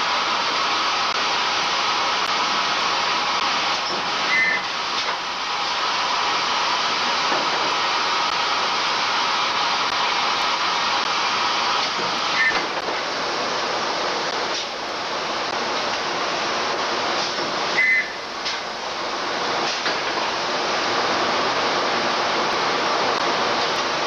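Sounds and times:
forge machinery rushing din: 0.0 - 24.0
brief high squeal: 4.3 - 4.7, 12.4 - 12.6.

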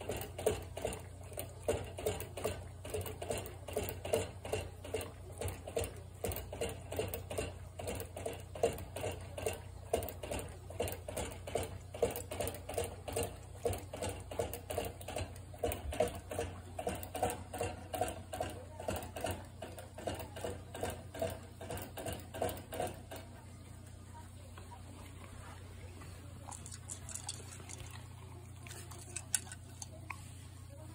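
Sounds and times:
dog licking water bottle spout: 25.0 - 30.3.

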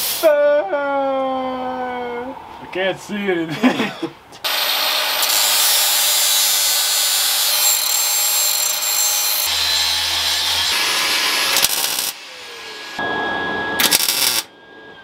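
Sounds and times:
angle grinder grinding steel: 4.5 - 13.0, 13.8 - 14.5.

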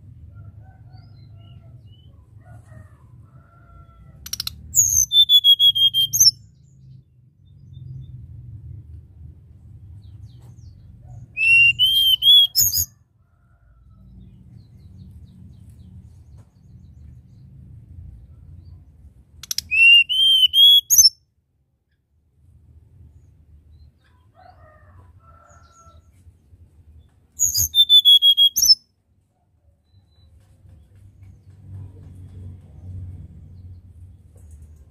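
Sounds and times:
bird singing whistled notes: 4.3 - 6.4, 11.4 - 12.9, 19.4 - 21.2, 27.4 - 28.8.

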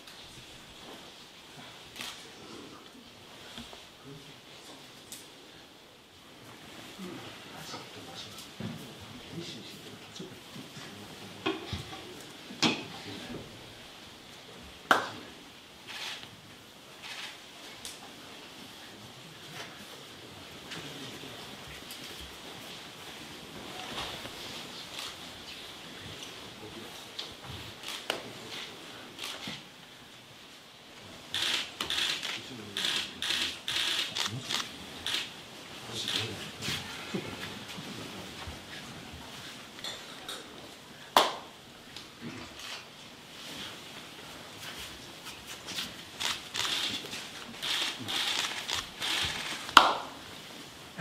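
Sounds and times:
faint rustle: 0.0 - 51.0
robes rustling: 16.9 - 29.9, 41.6 - 51.0.

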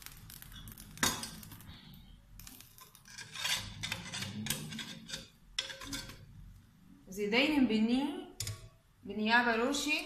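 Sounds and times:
metal spatula scraping tray: 2.8 - 6.3.

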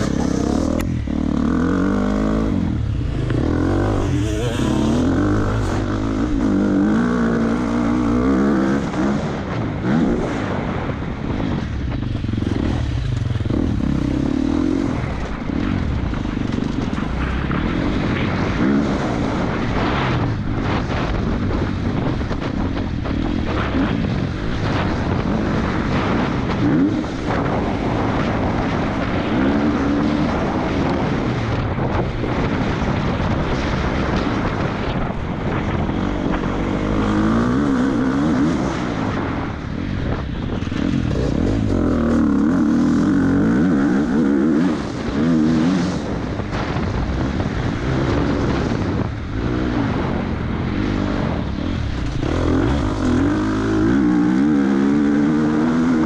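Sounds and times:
motocross engine revving: 0.0 - 10.9, 40.6 - 51.3, 52.0 - 56.0.

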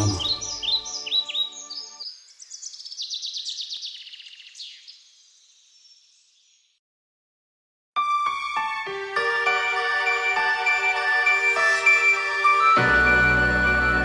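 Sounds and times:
held music chord: 0.0 - 1.0
songbird chirping and trilling: 0.0 - 6.8.

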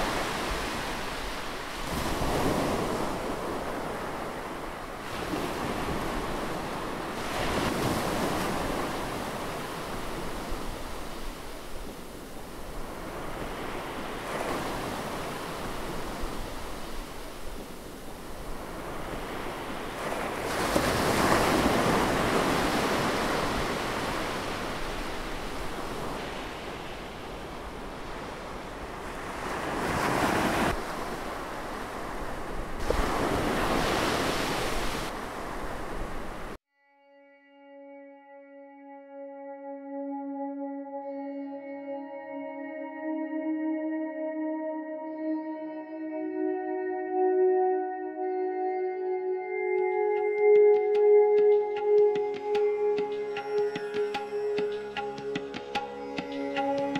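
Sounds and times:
ocean waves breaking: 0.0 - 36.6.

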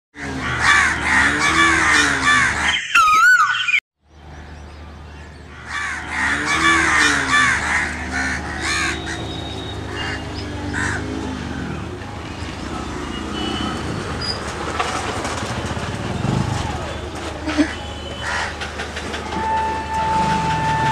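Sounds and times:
crows cawing: 0.2 - 2.7, 5.5 - 11.1, 18.2 - 18.6.

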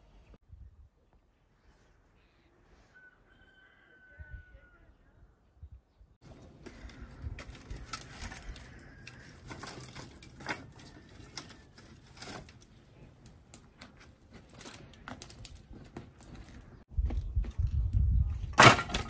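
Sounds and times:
firewood sticks knocking: 18.5 - 19.0.

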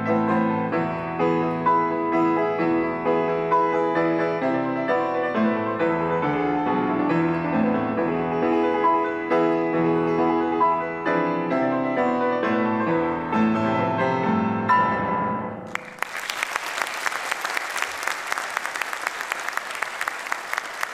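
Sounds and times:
grand piano playing: 0.0 - 16.0
audience applause: 15.7 - 20.9.

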